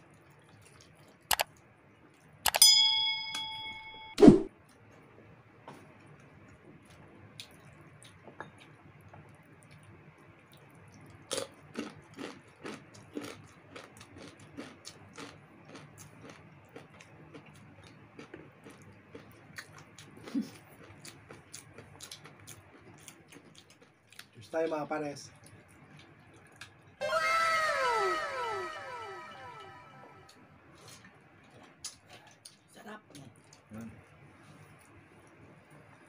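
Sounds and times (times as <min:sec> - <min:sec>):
wet chewing and lip smacks: 0:10.5 - 0:24.4, 0:25.3 - 0:26.9
crunching fried chicken skin: 0:11.3 - 0:24.4.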